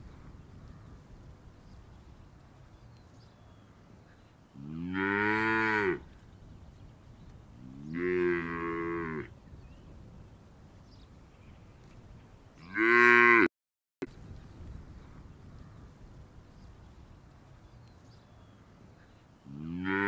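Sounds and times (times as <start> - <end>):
cow mooing: 12.6 - 13.5, 19.5 - 20.0.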